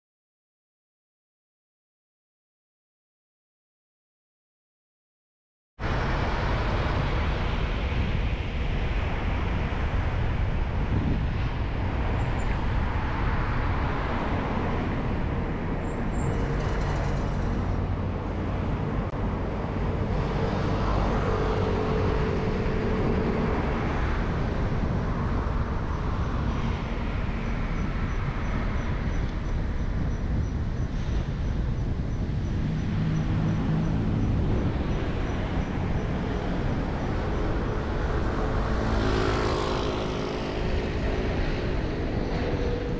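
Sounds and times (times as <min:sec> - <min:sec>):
car tyre and engine noise: 0:05.8 - 0:42.9
surrounding traffic: 0:05.8 - 0:42.9
nearby vehicle engine hum: 0:14.5 - 0:24.3, 0:32.2 - 0:42.9.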